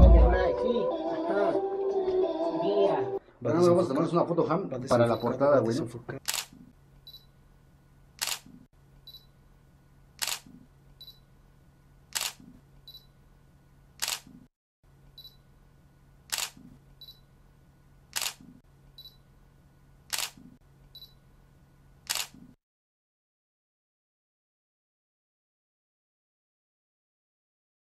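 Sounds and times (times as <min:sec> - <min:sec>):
camera shutter clicking: 0:06.2 - 0:06.6, 0:08.2 - 0:08.6, 0:10.2 - 0:10.5, 0:12.1 - 0:12.5, 0:14.0 - 0:14.4, 0:16.3 - 0:16.6, 0:18.1 - 0:18.5, 0:20.1 - 0:20.4, 0:22.0 - 0:22.5.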